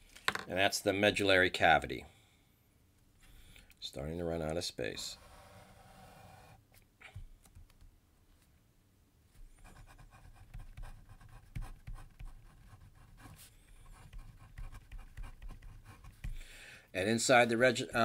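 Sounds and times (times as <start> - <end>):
pen writing on paper: 9.6 - 16.4.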